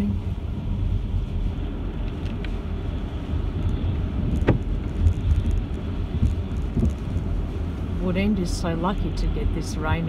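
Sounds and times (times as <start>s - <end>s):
car driving on wet road: 0.0s - 10.0s.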